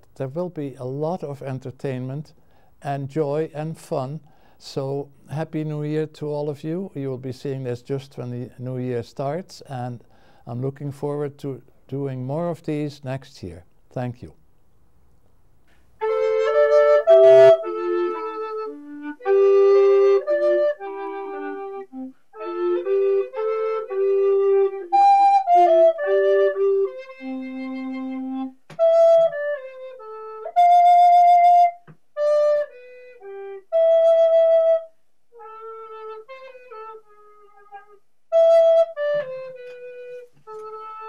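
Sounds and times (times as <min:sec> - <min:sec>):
slow solo flute-like melody: 0:16.0 - 0:41.0.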